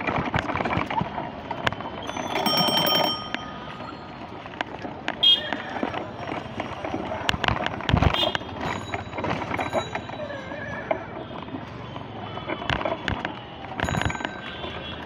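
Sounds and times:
street noise: 0:00.0 - 0:15.0
rickshaw bells ringing: 0:02.0 - 0:04.6, 0:08.5 - 0:10.7, 0:13.8 - 0:15.0.

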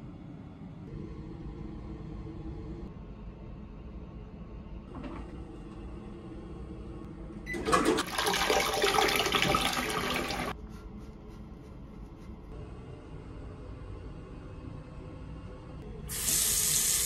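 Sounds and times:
toilet flushing: 0:07.5 - 0:10.6.

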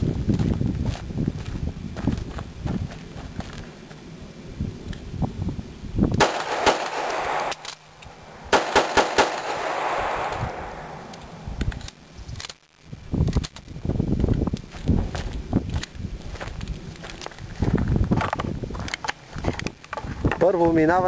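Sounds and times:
pistol shots echoing: 0:06.2 - 0:11.4.

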